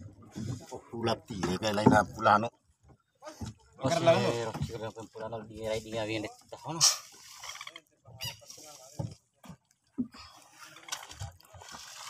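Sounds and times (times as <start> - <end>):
men's wordless vocal sounds: 3.8 - 5.0.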